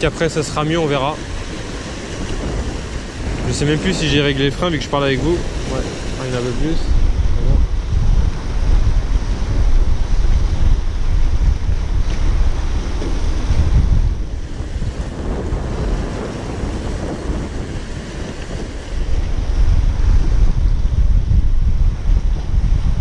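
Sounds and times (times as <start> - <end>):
sea surf washing on shore: 0.0 - 23.0
wind buffeting microphone: 0.0 - 23.0.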